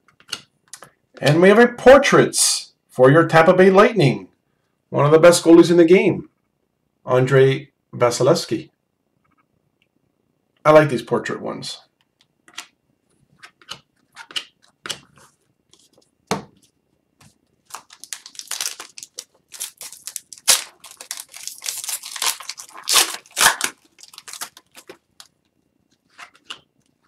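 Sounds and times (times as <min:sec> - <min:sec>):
cards being shuffled: 0:13.4 - 0:25.3
wrapper tearing and crinkling: 0:17.6 - 0:25.3.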